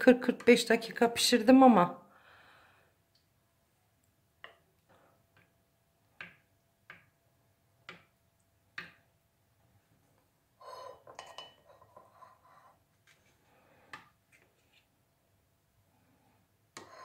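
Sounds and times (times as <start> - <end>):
spoon clicking on dishes: 11.1 - 11.7.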